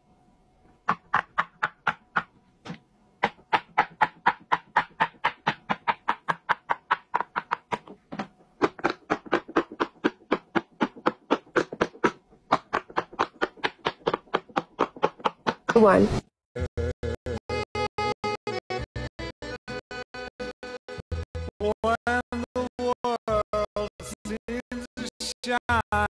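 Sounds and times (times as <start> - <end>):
fidget toy bubbles popping: 3.2 - 15.8.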